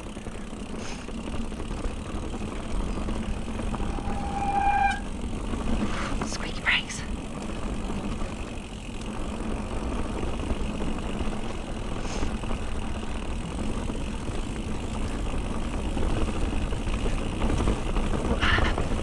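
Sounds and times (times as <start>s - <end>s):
bike tyres rumbling on dirt: 0.0s - 6.3s, 7.1s - 19.0s.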